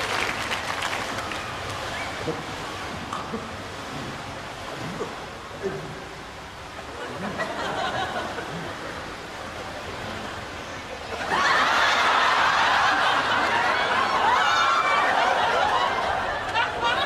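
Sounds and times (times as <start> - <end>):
audience laughter: 6.9 - 9.1, 11.0 - 17.0.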